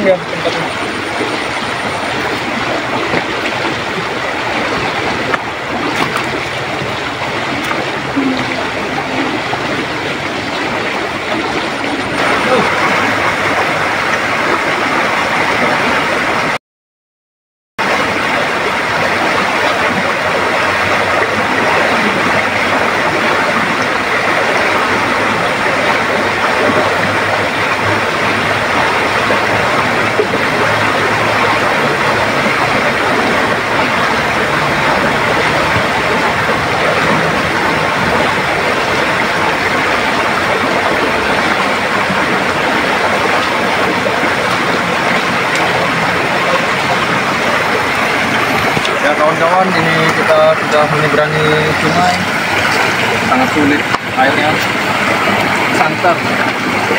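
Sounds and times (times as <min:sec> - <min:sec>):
river rushing: 0:00.0 - 0:16.6, 0:17.8 - 0:56.9.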